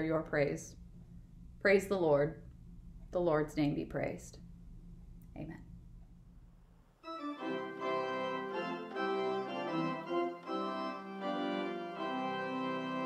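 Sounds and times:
pipe organ playing chords: 7.0 - 13.0.

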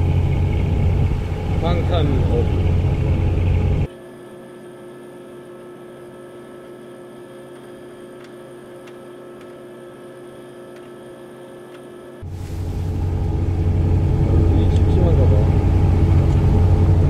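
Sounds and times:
steady hum of even tones: 0.0 - 17.0.

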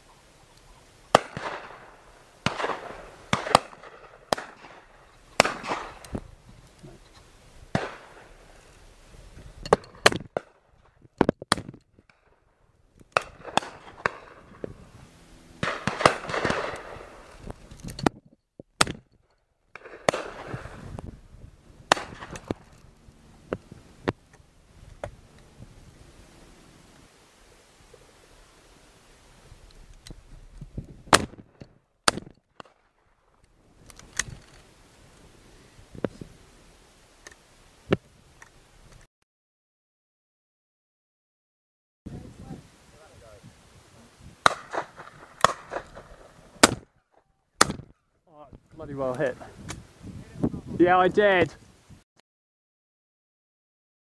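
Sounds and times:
gunshot echo: 1.1 - 6.1, 7.7 - 8.3, 13.2 - 14.7, 15.6 - 17.3, 19.7 - 20.8, 21.9 - 22.7, 31.1 - 32.9, 44.4 - 46.9
distant shotgun shots: 1.1 - 6.2, 7.7 - 8.4, 13.1 - 14.8, 15.6 - 17.4, 19.7 - 20.8, 21.9 - 22.7, 31.1 - 33.0, 44.4 - 46.9
shotguns firing: 1.1 - 6.2, 7.7 - 8.4, 13.1 - 14.8, 15.6 - 17.4, 19.7 - 20.8, 21.8 - 22.8, 31.1 - 32.9, 44.4 - 46.9.

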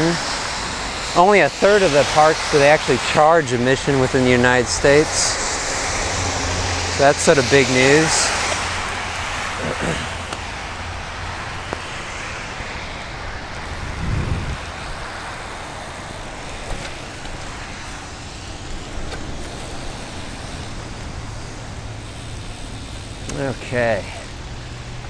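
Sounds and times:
wind noise: 0.0 - 22.9
bicycle tyres hissing on wet road: 0.0 - 25.0.

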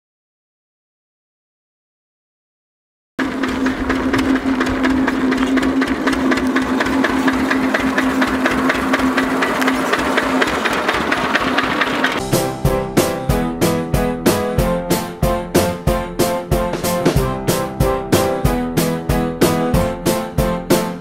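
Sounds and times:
farm vehicle engine knocking: 3.2 - 12.3
piano music: 3.2 - 21.0.

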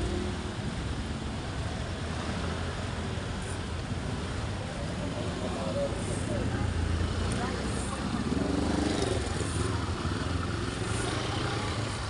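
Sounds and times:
road noise hiss: 0.0 - 12.0
motorcycle engine rumble: 3.1 - 12.0.

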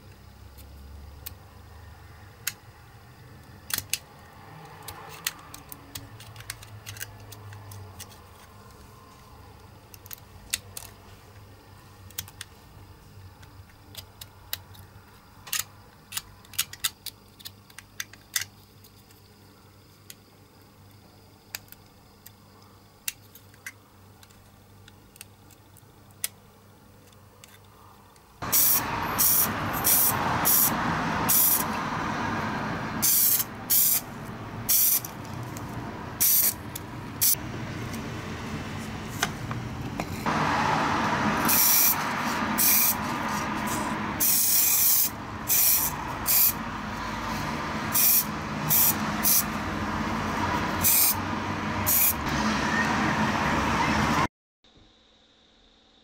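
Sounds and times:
steady background noise: 0.0 - 54.3
spray paint hissing bursts: 28.4 - 31.8, 33.0 - 34.1, 34.7 - 35.1, 36.2 - 36.6, 41.3 - 46.6, 47.9 - 49.5, 50.8 - 51.2, 51.8 - 52.3.

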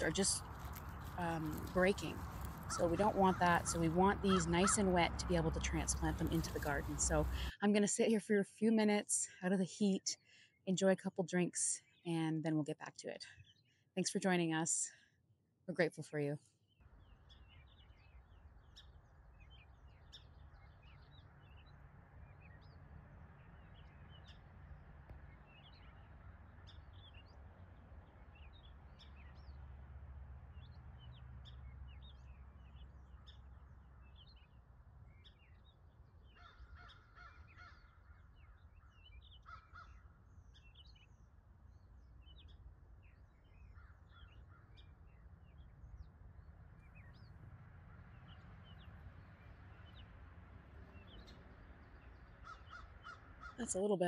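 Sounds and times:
birds chirping: 0.0 - 7.6, 16.9 - 54.0.

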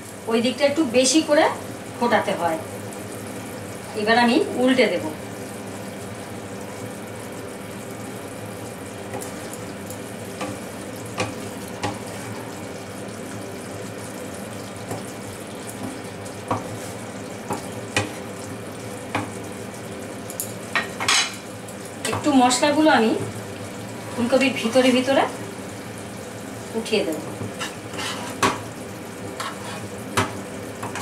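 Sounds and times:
simmering gravy hiss: 0.0 - 20.8, 21.4 - 31.0
spatula scraping and tapping pan: 10.4 - 12.5, 15.8 - 18.3, 27.4 - 28.7, 29.4 - 31.0.

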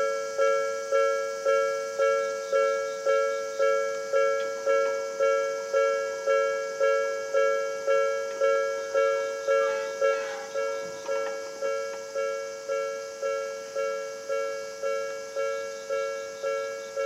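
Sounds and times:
level crossing warning bell: 0.0 - 17.0.

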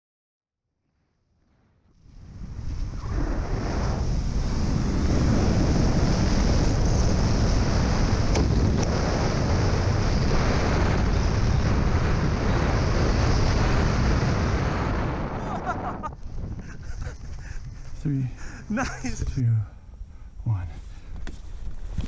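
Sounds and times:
wind buffeting microphone: 2.0 - 19.4.

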